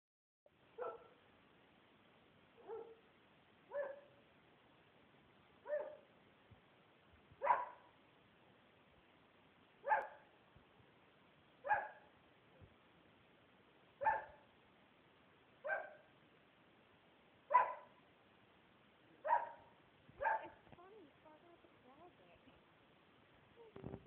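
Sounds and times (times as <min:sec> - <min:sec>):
dog barking: 0:00.8 - 0:01.2, 0:02.6 - 0:03.0, 0:03.7 - 0:04.2, 0:05.6 - 0:06.1, 0:07.4 - 0:07.9, 0:09.8 - 0:10.3, 0:11.6 - 0:12.1, 0:14.0 - 0:14.5, 0:15.6 - 0:16.1, 0:17.5 - 0:18.0, 0:19.2 - 0:20.6.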